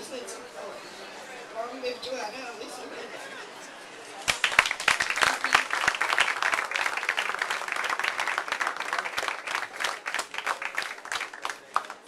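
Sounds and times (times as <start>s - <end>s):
audience clapping: 4.2s - 12.0s.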